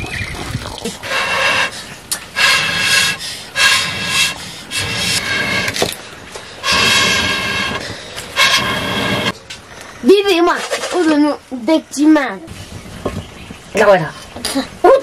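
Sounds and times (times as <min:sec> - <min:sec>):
breathy blows through blowpipe: 0:01.0 - 0:09.3.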